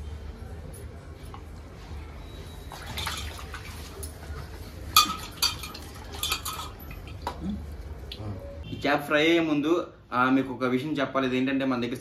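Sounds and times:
water splashing in a steel bowl: 2.5 - 7.4
clinks against metal bowl: 5.0 - 7.4.

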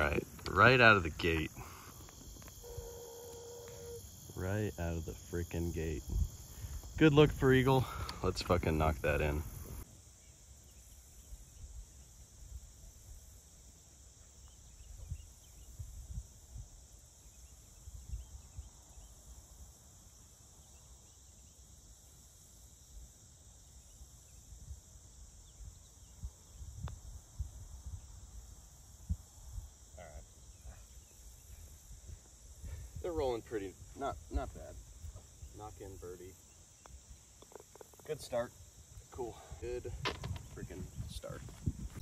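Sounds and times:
high insect chorus: 0.0 - 42.0
wind rumble on microphone: 6.0 - 7.4, 14.8 - 16.8, 39.5 - 42.0.

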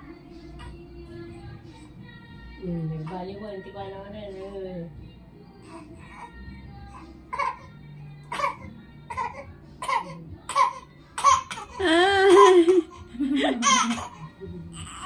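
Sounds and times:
baby crying: 8.3 - 15.0.

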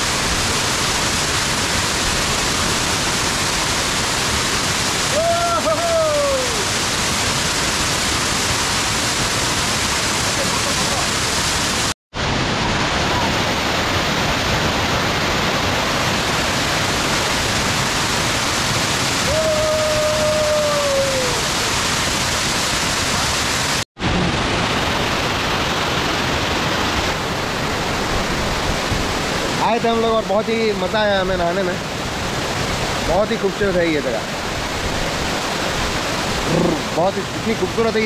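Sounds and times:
waterfall rushing over rock: 0.0 - 38.0
person calling out: 5.1 - 6.7, 36.5 - 37.0.

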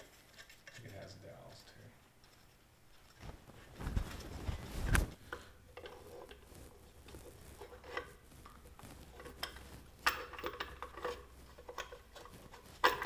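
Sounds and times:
light metallic clinks and knocks: 7.6 - 13.0.

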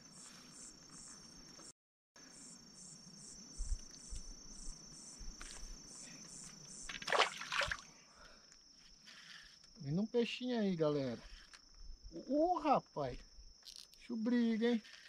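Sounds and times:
insects chirping: 0.0 - 15.0.

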